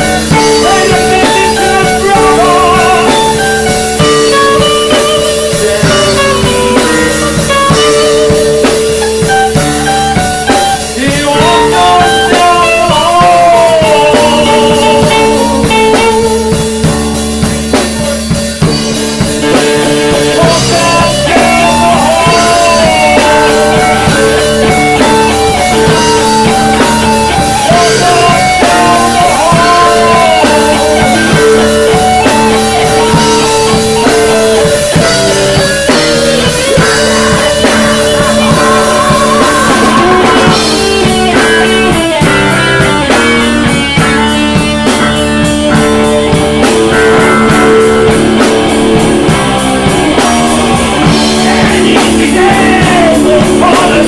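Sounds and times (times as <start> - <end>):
blues rock song: 0.0 - 54.0.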